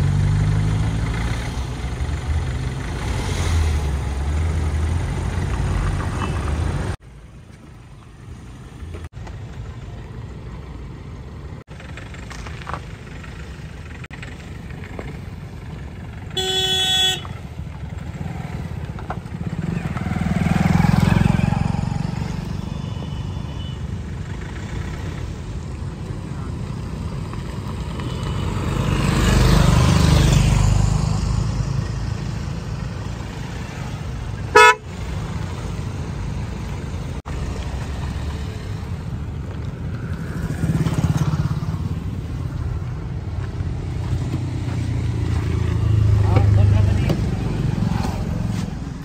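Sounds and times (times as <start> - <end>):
traffic rumble: 0.0 - 49.0
short car horn toot: 16.4 - 17.3, 34.5 - 34.8.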